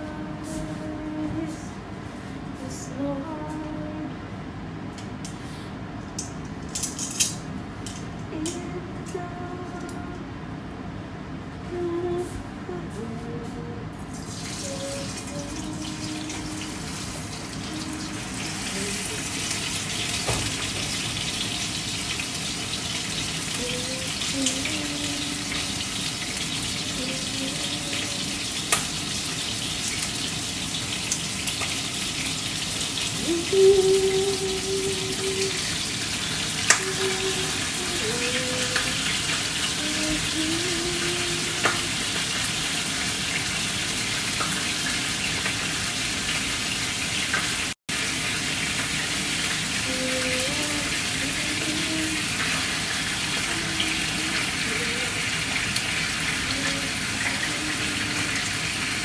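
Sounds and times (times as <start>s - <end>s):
fish sizzling in oil: 14.2s - 59.0s.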